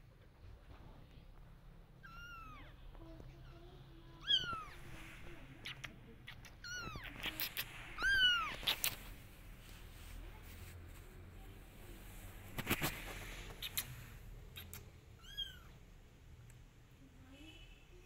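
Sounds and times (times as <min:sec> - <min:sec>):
kitten mewing: 0:05.6 - 0:09.2
sharp clicks: 0:13.5 - 0:14.9.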